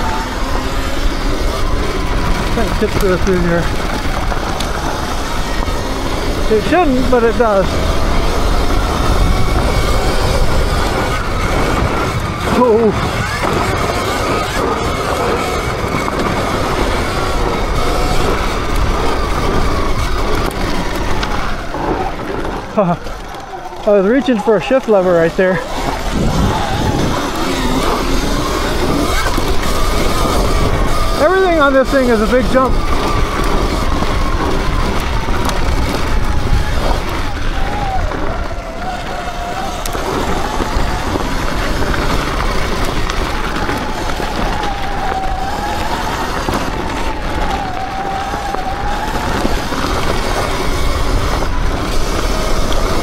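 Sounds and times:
electric dirt bike riding: 0:00.0 - 0:53.0
electric motor whine: 0:00.0 - 0:53.0
wind buffeting microphone: 0:00.0 - 0:53.0.

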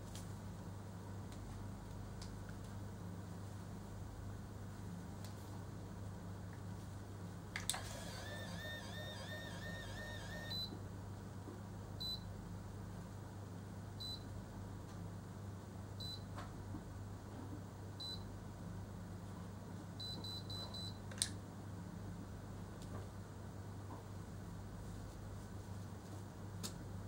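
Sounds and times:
hair curler beeps: 0:08.0 - 0:10.7.

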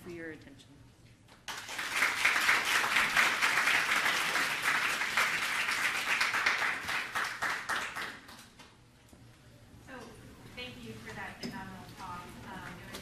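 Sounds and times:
audience applauding: 0:01.5 - 0:08.4.

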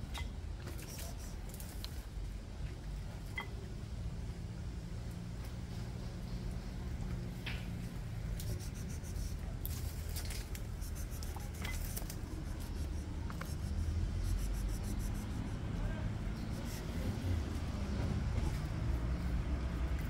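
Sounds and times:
cat chewing and licking: 0:08.4 - 0:15.8.

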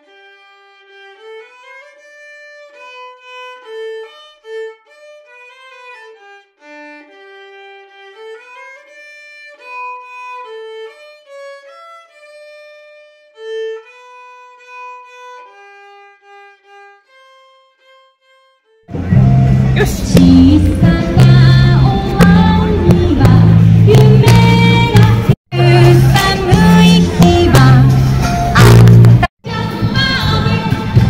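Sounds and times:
solo bowed string melody: 0:00.0 - 0:24.8.

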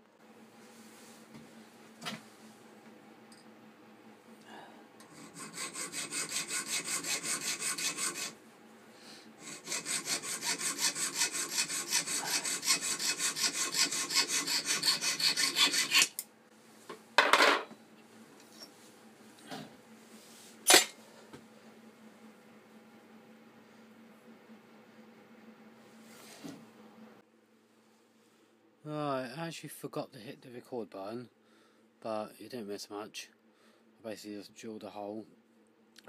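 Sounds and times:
hacksaw rasping through steel: 0:05.0 - 0:08.4, 0:09.4 - 0:16.2.

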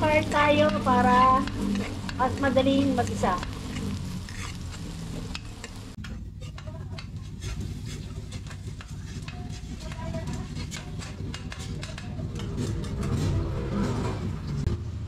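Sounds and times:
onion sizzling in hot oil: 0:00.0 - 0:13.0
metal spatula scraping a wok: 0:00.0 - 0:14.7.

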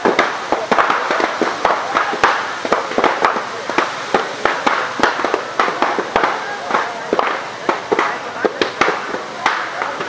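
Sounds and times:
fire crackling and popping: 0:00.0 - 0:10.0
hiss of flames: 0:00.0 - 0:10.0.

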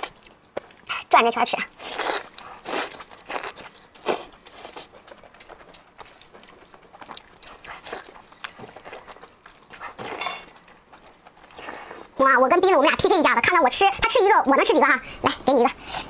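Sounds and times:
person chewing meat: 0:00.0 - 0:01.1, 0:01.7 - 0:12.2.

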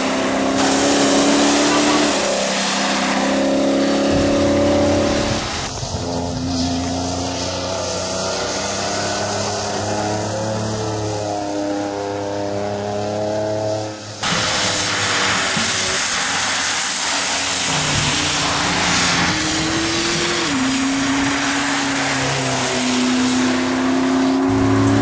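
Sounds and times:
rally car engine: 0:00.0 - 0:25.0
tyre spray hissing: 0:00.1 - 0:10.7, 0:14.0 - 0:25.0.

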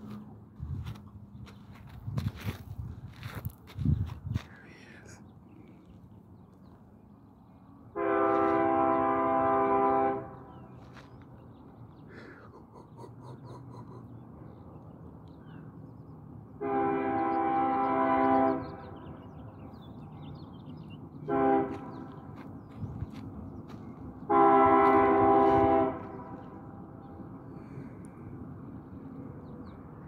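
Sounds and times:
freight train rumble: 0:00.0 - 0:15.1, 0:15.8 - 0:30.0
locomotive air horn blasts: 0:07.9 - 0:10.5, 0:16.6 - 0:19.0, 0:21.3 - 0:22.1, 0:24.3 - 0:26.6.

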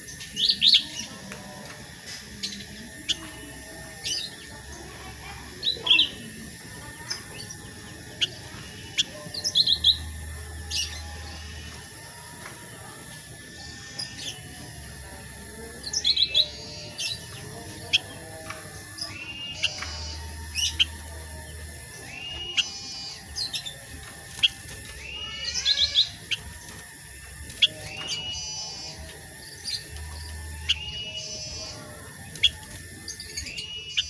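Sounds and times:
bird chirping and whistling: 0:15.8 - 0:34.0.

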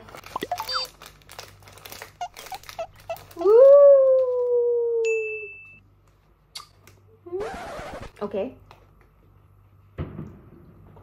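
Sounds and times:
plastic snack wrapper crinkling: 0:00.0 - 0:04.4.

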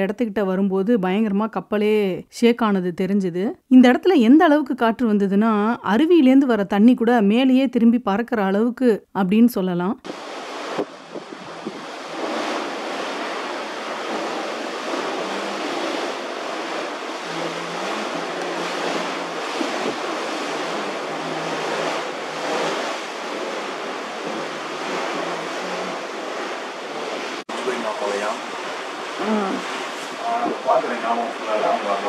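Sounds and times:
fierce wind gusting over water: 0:10.0 - 0:32.0
wind buffeting microphone: 0:10.1 - 0:31.0.

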